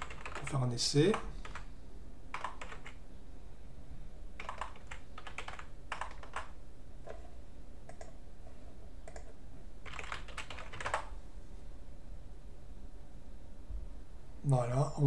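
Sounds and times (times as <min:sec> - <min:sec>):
computer keyboard typing: 0:00.0 - 0:01.7, 0:02.3 - 0:03.0, 0:04.4 - 0:07.3, 0:07.9 - 0:08.2, 0:09.0 - 0:11.1.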